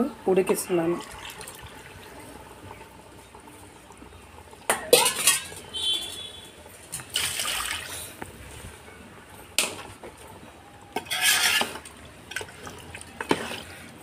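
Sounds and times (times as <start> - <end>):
spoon clanking on metal pot: 4.7 - 5.6.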